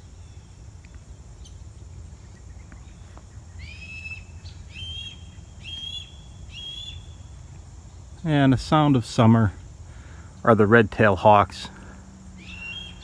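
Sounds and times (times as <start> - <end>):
young hawk crying: 3.6 - 7.3, 11.8 - 13.0.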